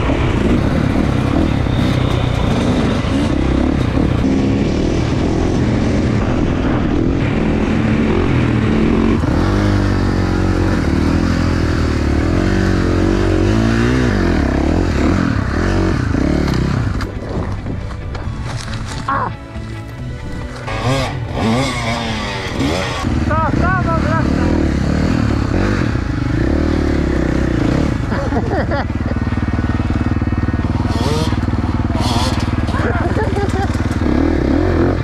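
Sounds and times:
dirt bike engines revving: 0.0s - 35.0s.

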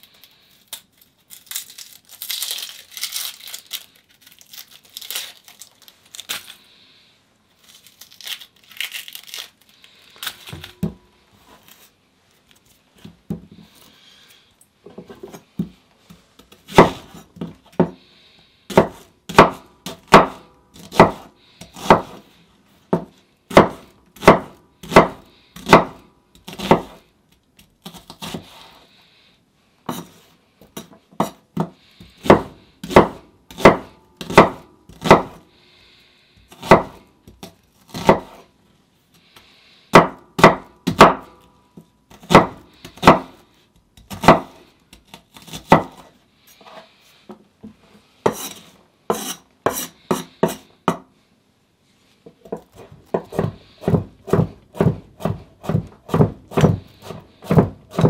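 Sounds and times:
papery skins crinkling: 0.0s - 6.8s, 7.5s - 10.8s
knife chopping on wooden board: 16.5s - 18.0s, 18.7s - 22.2s, 22.9s - 27.0s, 30.8s - 35.4s, 36.5s - 38.4s, 39.9s - 41.3s, 42.2s - 43.4s, 44.0s - 46.1s, 48.2s - 51.1s, 52.4s - 58.0s.

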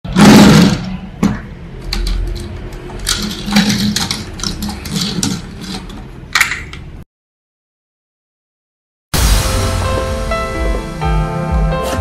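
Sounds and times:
plastic toy clicking and knocking: 1.8s - 6.8s.

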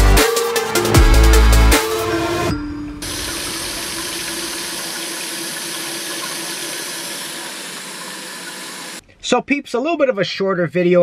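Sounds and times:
faucet running into steel sink: 3.0s - 9.0s.

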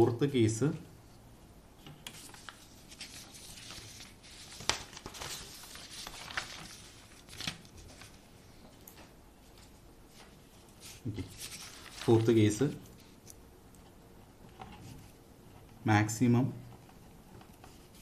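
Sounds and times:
paper rustling: 1.8s - 13.4s
paper crackling: 2.0s - 8.3s, 8.9s - 13.4s.

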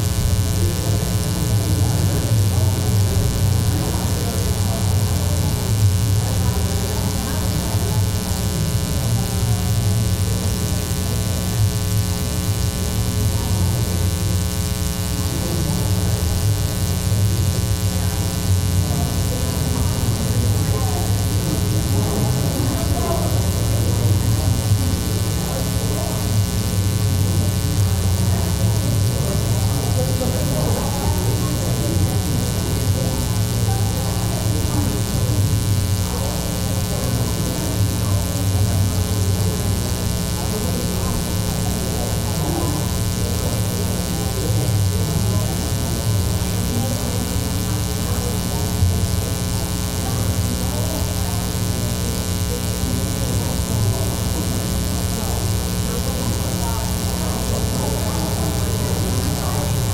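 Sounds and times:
electrical mains hum: 0.0s - 59.9s
faint indistinct talking: 0.0s - 59.9s.

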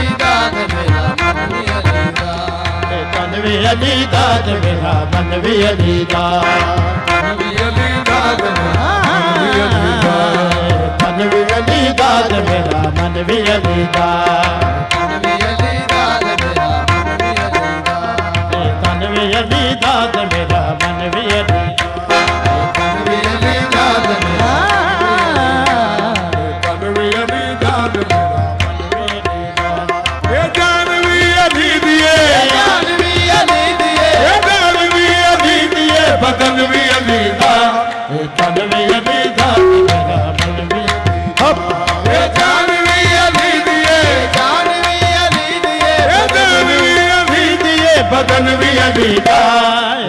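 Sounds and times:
harmonium sustained notes: 0.0s - 49.5s
tabla drumming: 0.0s - 50.0s
person singing ornamented melody: 7.3s - 14.2s.

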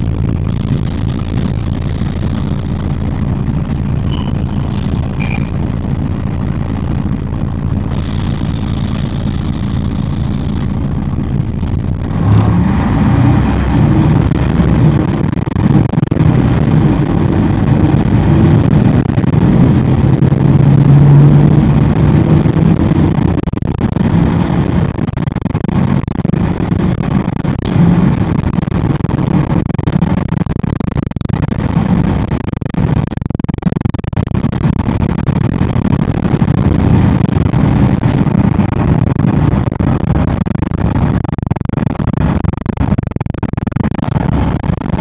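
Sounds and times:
bus engine accelerating: 0.0s - 23.3s.

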